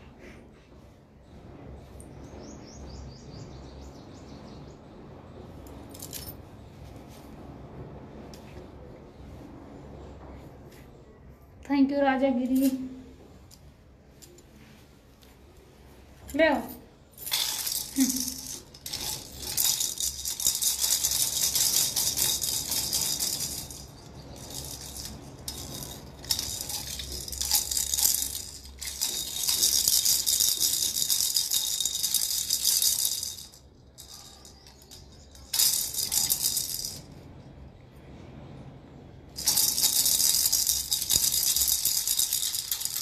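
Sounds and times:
plastic baby rattles shaken: 0:17.2 - 0:37.2, 0:39.4 - 0:43.0.

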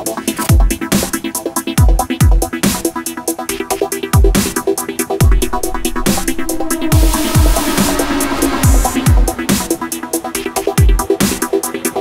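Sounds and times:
deep bass kicks: 0:05.2 - 0:09.8
repeating synth line: 0:05.2 - 0:10.0.

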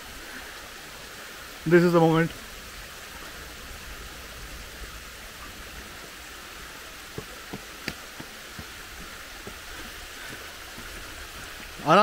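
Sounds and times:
waterfall rushing: 0:00.0 - 0:12.0
footsteps on stone steps: 0:07.1 - 0:12.0.

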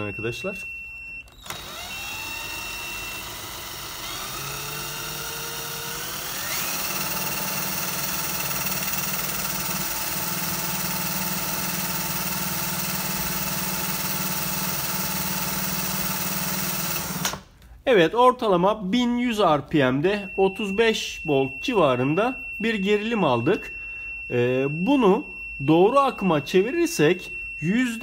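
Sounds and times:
cordless drill motor whine: 0:00.6 - 0:17.4.

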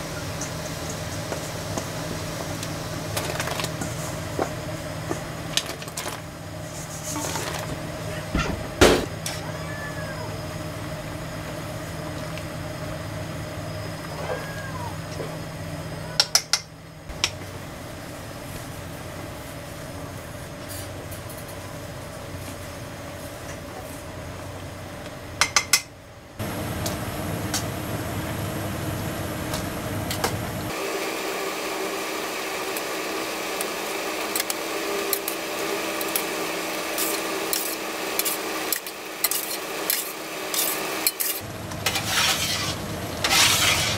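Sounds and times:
pot of water boiling: 0:00.0 - 0:07.7.

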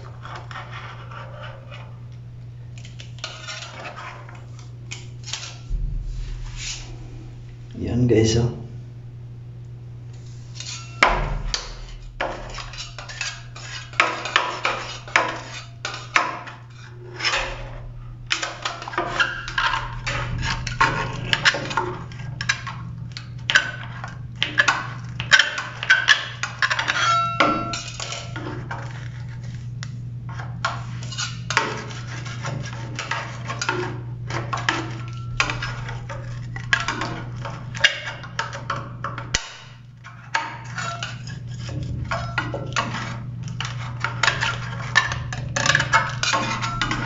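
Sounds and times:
steady low hum: 0:00.0 - 0:47.0
metal scraper scraping and clicking: 0:10.6 - 0:29.6, 0:30.3 - 0:47.0.

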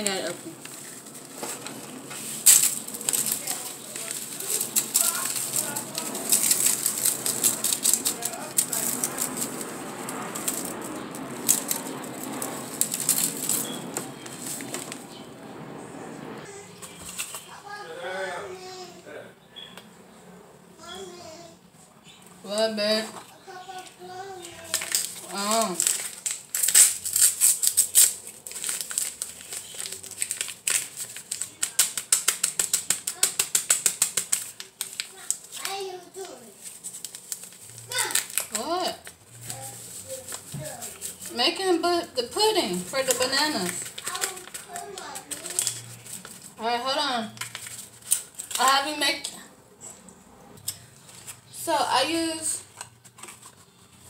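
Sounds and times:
crumbs rattling onto foil: 0:00.0 - 0:15.0, 0:24.5 - 0:41.6, 0:42.3 - 0:49.3
plastic bag crinkling: 0:00.0 - 0:15.2, 0:24.2 - 0:49.4.

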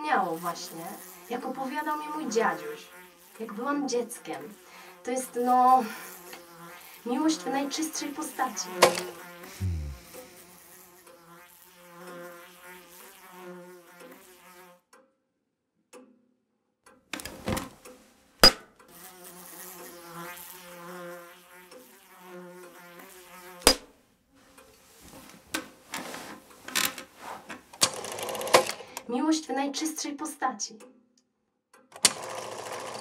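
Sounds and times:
pitched buzzing drone: 0:09.5 - 0:10.3.

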